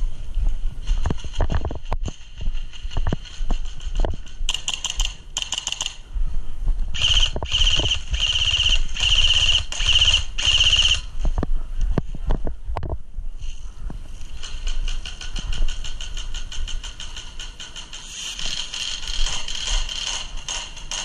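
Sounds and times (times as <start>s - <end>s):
airsoft rifle full-auto bursts: 4.5s - 6.0s, 7.0s - 11.1s.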